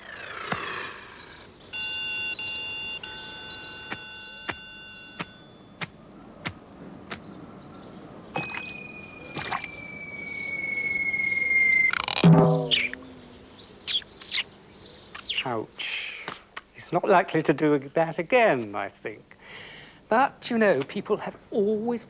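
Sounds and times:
descending slide whistle: 8.4 - 13.1
held electronic chord: 12.2 - 13.5.

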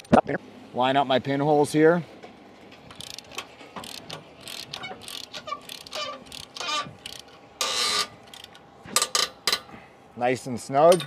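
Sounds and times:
ratchet wrench clicking: 2.9 - 9.6.

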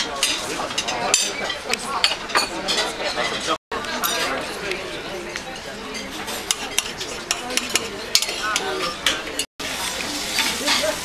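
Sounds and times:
cutlery and crockery clinking: 0.0 - 11.0.

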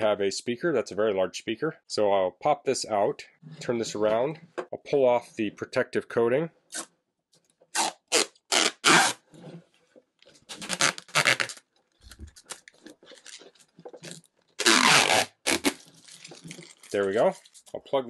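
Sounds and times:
plastic film peeling off: 10.4 - 17.8.

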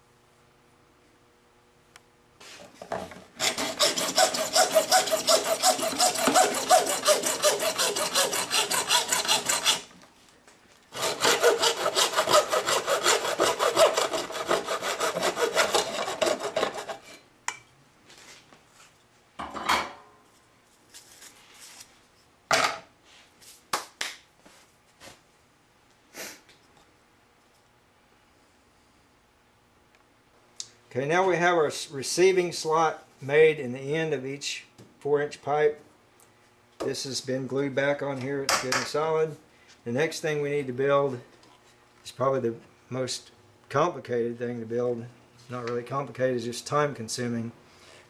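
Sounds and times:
hand tool sawing plastic pipe: 3.4 - 9.9, 10.9 - 17.2.

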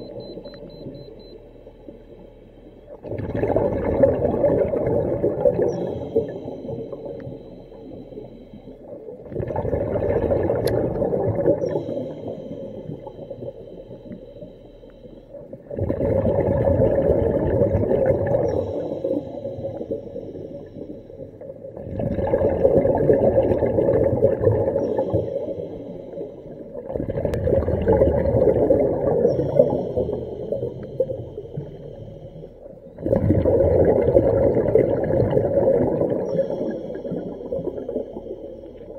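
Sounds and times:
exhaled bubbles gushing: 2.9 - 7.4, 9.0 - 13.5, 15.5 - 20.0, 21.4 - 31.8, 33.0 - 38.9
regulator inhale whistling hiss: 18.5 - 21.2.

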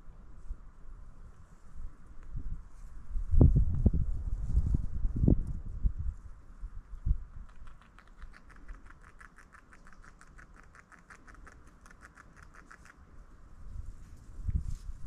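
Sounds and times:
beaver gnawing wood: 7.4 - 13.2.

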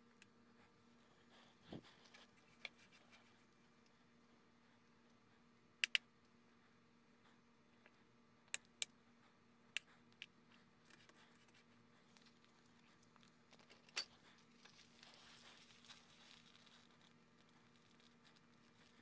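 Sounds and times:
steady low hum: 0.0 - 19.0
soft crinkly rustle: 0.5 - 5.2, 9.9 - 19.0.

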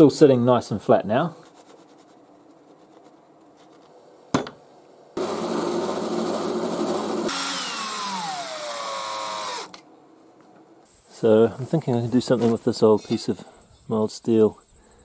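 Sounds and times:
power tool whine: 5.2 - 9.8.

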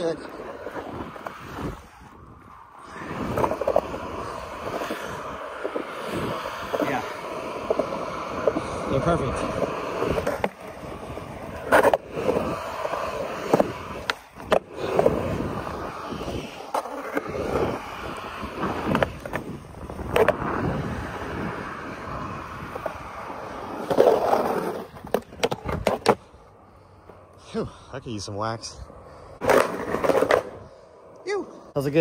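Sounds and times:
skateboard rolling on concrete: 0.0 - 32.0
skateboard clacking on ground: 2.8 - 26.3, 29.4 - 30.6.

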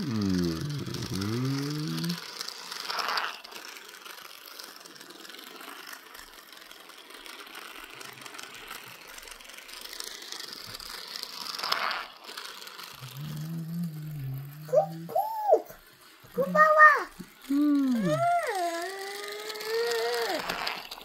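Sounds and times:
toy car motor whirring and clicking: 0.0 - 21.0
wavering gliding pitched sound: 13.0 - 15.8.

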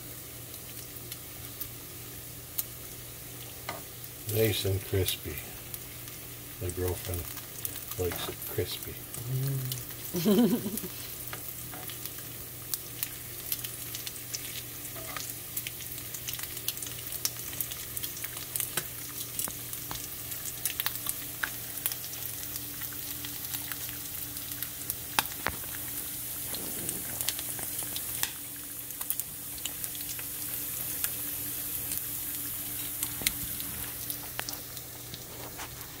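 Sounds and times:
bacon sizzling in a frying pan: 0.0 - 36.0
fat popping and crackling: 23.5 - 30.1.

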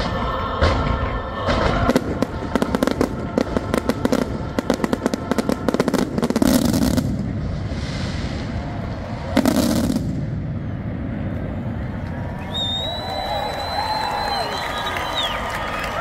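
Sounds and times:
music playing: 0.0 - 6.4
fireworks bangs and crackles: 0.0 - 15.4.

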